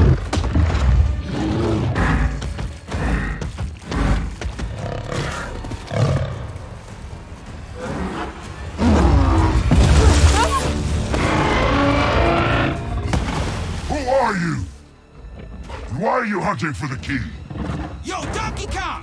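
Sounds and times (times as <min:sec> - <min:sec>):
tense film score: 0:00.0 - 0:19.0
water splashing: 0:13.0 - 0:14.8.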